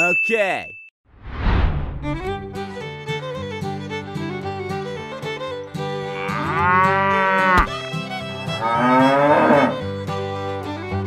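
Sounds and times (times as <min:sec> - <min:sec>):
fiddle background music: 0:02.0 - 0:11.0
cow mooing: 0:06.1 - 0:07.7, 0:08.6 - 0:09.8.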